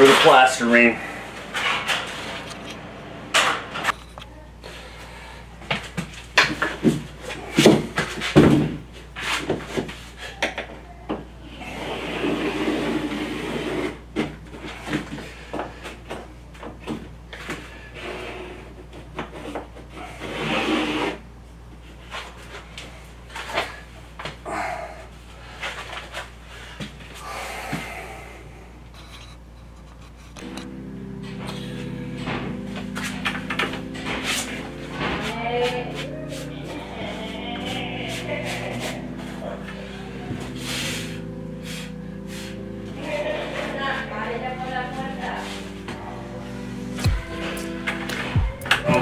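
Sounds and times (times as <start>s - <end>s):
scraping drywall: 11.6s - 14.0s, 19.3s - 21.2s.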